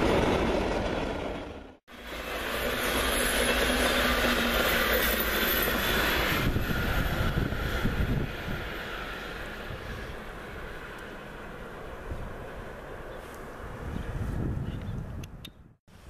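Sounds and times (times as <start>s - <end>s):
train wheel and rail noise: 0.0s - 14.4s.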